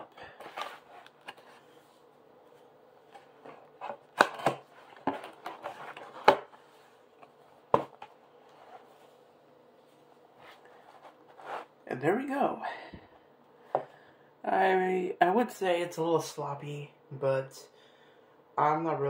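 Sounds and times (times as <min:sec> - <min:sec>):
cardboard rustling: 0:00.1 - 0:09.2, 0:10.4 - 0:11.7
cardboard snaps and knocks: 0:04.1 - 0:05.4, 0:06.2 - 0:06.5.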